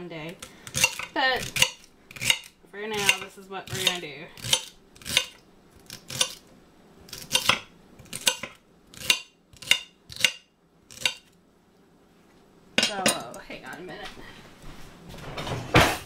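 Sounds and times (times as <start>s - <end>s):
knife chopping on cutting board: 0.7s - 5.4s, 7.1s - 11.3s.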